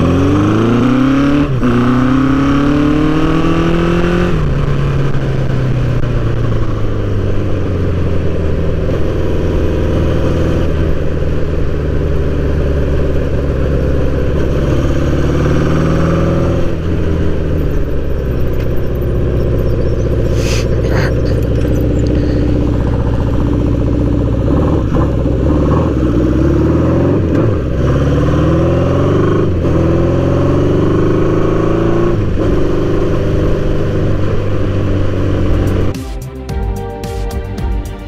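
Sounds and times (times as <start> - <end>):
motorcycle engine revving: 0.0 - 36.0.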